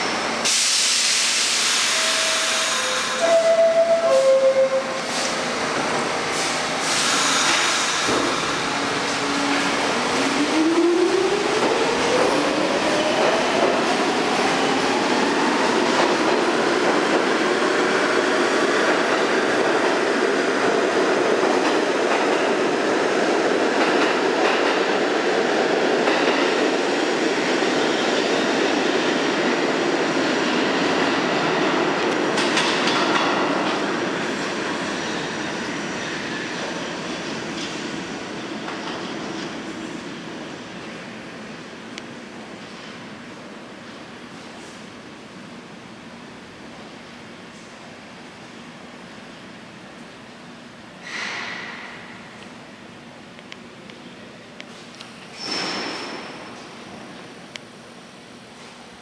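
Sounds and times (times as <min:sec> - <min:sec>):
train cars clattering over rails: 0:31.8 - 0:33.9.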